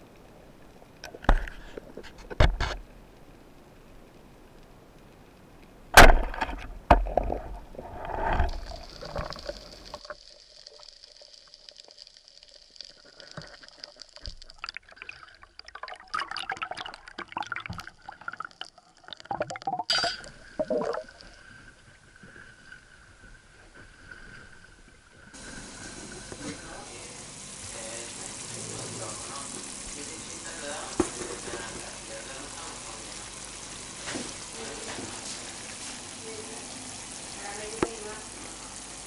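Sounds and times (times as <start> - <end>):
loud underwater knocks: 5.9 - 7.6
water splashing: 6.0 - 21.7.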